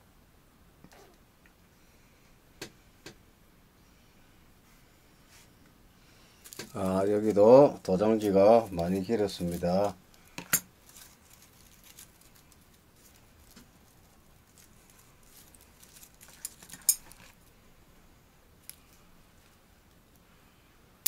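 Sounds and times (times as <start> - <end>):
faint handling noise: 4.6 - 17.6.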